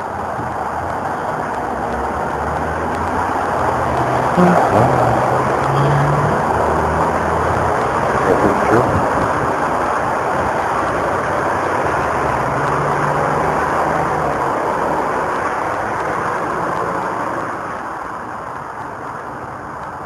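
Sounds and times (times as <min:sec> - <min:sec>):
street traffic noise: 0:00.0 - 0:20.0
vehicle engine passing: 0:02.0 - 0:15.9.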